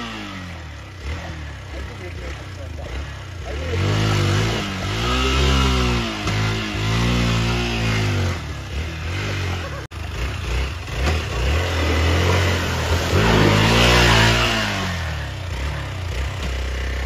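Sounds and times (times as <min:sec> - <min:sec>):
motorcycle engine revving: 0:00.0 - 0:17.0
wheel spinning throwing mud: 0:10.5 - 0:15.0.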